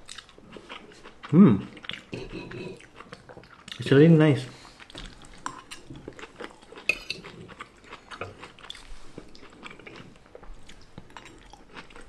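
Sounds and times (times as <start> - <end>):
forks scraping on plates: 2.1 - 2.8.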